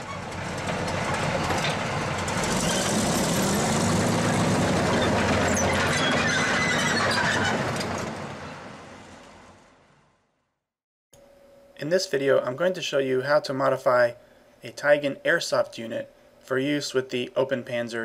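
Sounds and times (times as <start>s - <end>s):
metal squealing and clattering: 0.0s - 8.6s
heavy vehicle engine drone: 0.0s - 10.2s.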